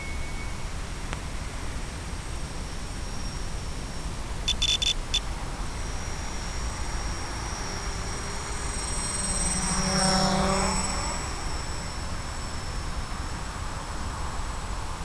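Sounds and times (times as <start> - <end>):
drone propellers buzzing: 4.3 - 15.0
short beeps: 4.4 - 5.3.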